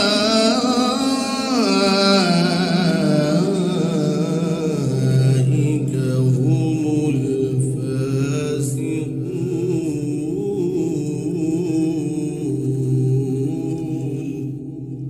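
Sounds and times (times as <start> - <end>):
man chanting recitation: 0.0 - 15.0.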